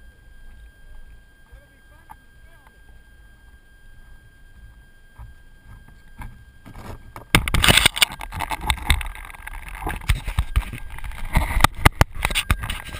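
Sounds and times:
rustling scraping and knocking: 0:05.2 - 0:12.9.

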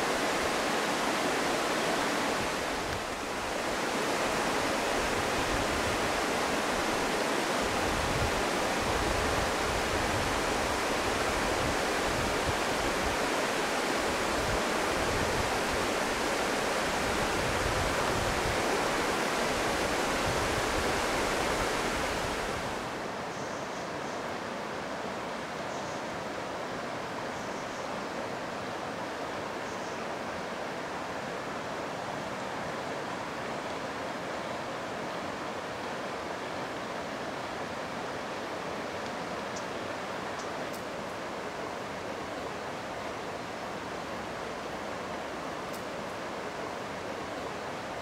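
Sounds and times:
river water rushing over rocks: 0:00.0 - 0:23.3.

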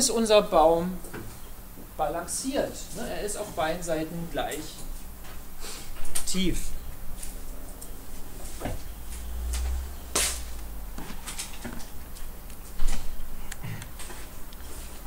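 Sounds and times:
faint steady hum: 0:00.0 - 0:15.0
brief low rumble: 0:07.5 - 0:11.6.

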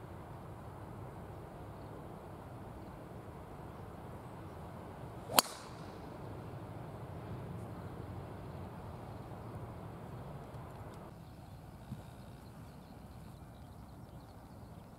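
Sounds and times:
golf club swish: 0:05.3 - 0:05.9
golf club striking ball: 0:05.3 - 0:06.0.

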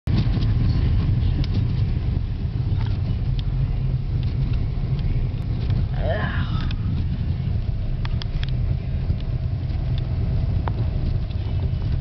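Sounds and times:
car engine and road noise: 0:00.0 - 0:12.0
faint light ticks: 0:08.0 - 0:11.5.

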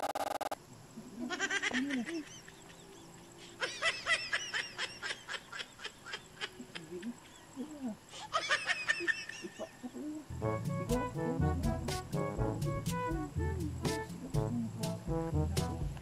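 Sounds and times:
background music: 0:10.3 - 0:16.0.

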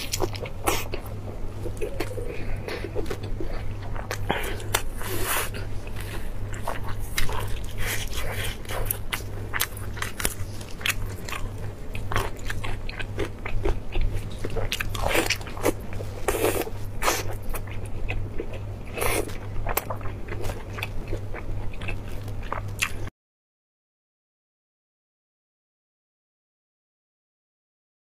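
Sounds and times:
person chewing sticky food: 0:00.0 - 0:23.1
steady low hum: 0:00.0 - 0:23.1.

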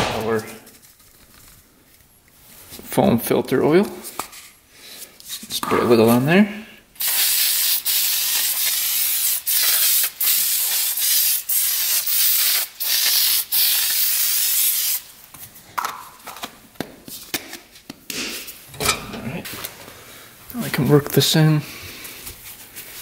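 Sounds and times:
aerosol can spraying: 0:07.0 - 0:15.0.

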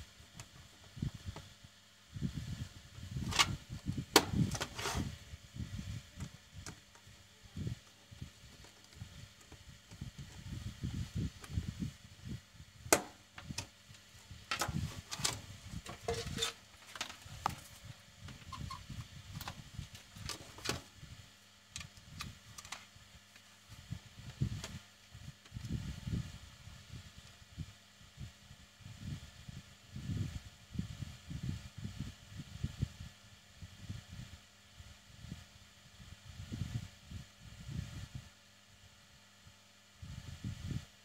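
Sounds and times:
low rumbling handling noise: 0:12.8 - 0:20.9.

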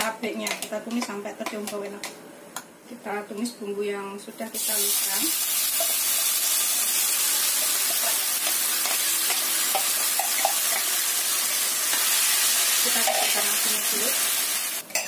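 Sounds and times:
chilli paste sizzling in hot oil: 0:04.6 - 0:15.0.

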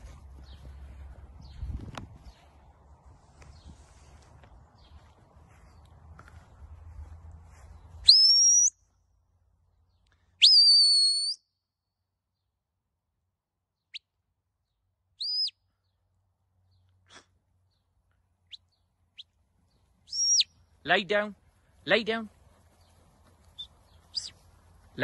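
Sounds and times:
short high whistle chirps: 0:08.0 - 0:08.8, 0:10.4 - 0:11.4, 0:15.2 - 0:15.6, 0:20.1 - 0:20.5
whistle commands: 0:08.0 - 0:08.8, 0:10.4 - 0:11.5, 0:15.2 - 0:15.6, 0:20.1 - 0:20.5, 0:23.6 - 0:24.3.

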